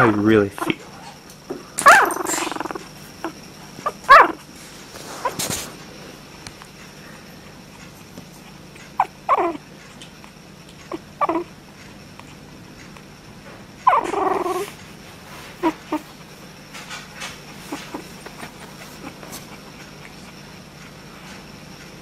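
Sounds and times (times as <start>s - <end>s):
puppy whiny grumbles: 1.8s - 5.8s, 7.8s - 9.7s, 10.8s - 11.6s, 13.8s - 14.8s, 15.4s - 16.3s, 17.3s - 20.4s.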